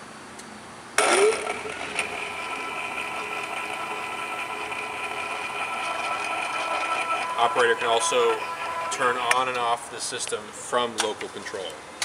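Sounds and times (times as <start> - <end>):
electric motor humming: 1.0 - 9.7.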